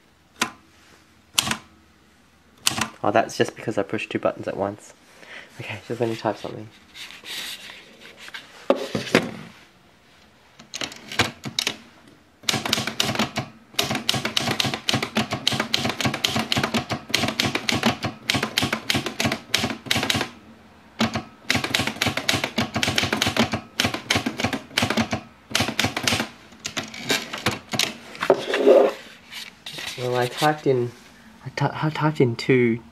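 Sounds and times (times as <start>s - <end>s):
manual typewriter typing: 12.4s - 20.4s, 21.0s - 28.0s.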